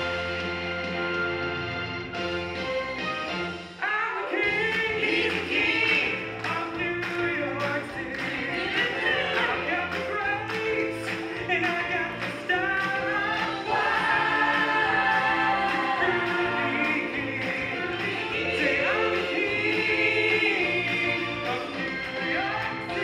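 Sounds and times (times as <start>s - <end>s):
musical accompaniment with steady beat: 0.0s - 23.0s
cast singing together: 4.4s - 23.0s.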